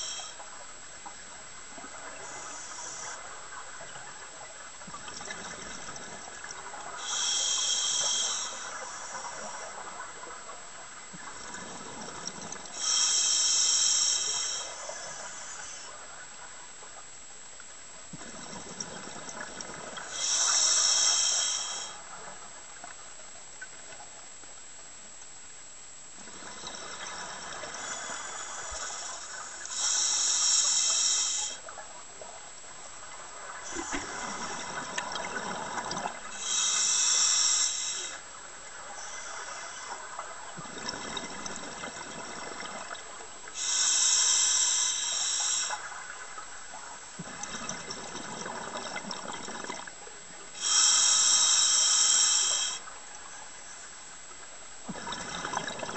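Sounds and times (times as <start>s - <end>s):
regulator breath hiss: 0.0s - 0.6s, 2.1s - 3.3s, 6.9s - 10.0s, 12.7s - 16.0s, 20.0s - 22.2s, 26.7s - 31.7s, 36.3s - 38.3s, 38.9s - 40.1s, 43.5s - 46.1s, 50.6s - 53.0s.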